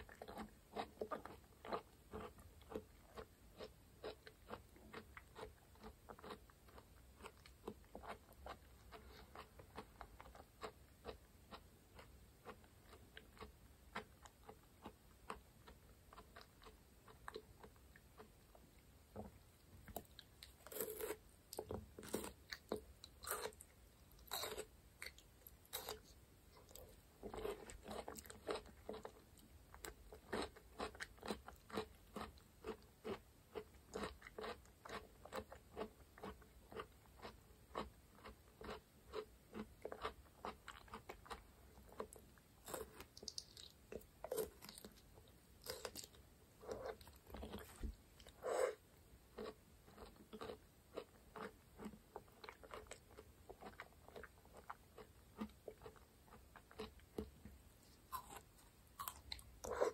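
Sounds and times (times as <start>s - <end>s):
person chewing and biting: 19.9s - 48.8s, 49.4s - 57.4s, 58.1s - 59.9s.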